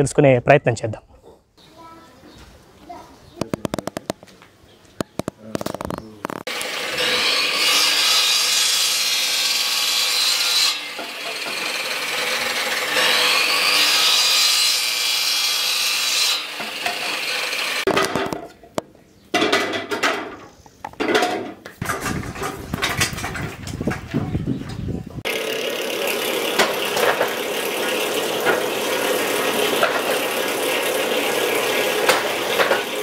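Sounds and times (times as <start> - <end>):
sharp knocks and taps: 3.4 - 4.4, 5.0 - 6.4.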